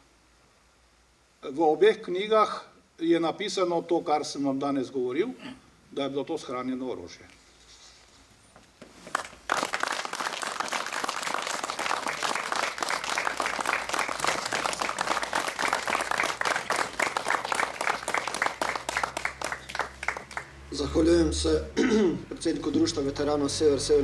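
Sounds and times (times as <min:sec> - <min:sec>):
crowd applauding: 0:09.1 - 0:20.9.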